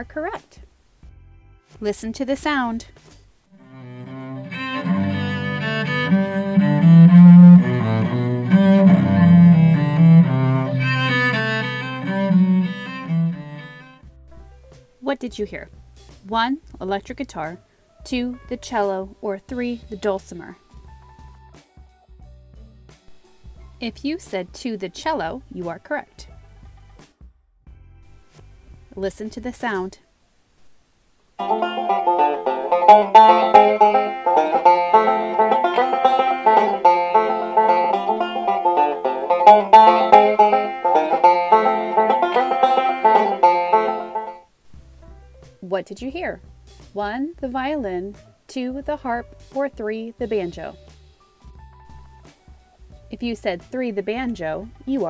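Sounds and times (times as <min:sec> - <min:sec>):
banjo picking: 0:03.6 - 0:14.0, 0:31.4 - 0:44.5
cello playing bowed melody: 0:03.6 - 0:14.0, 0:31.4 - 0:44.5.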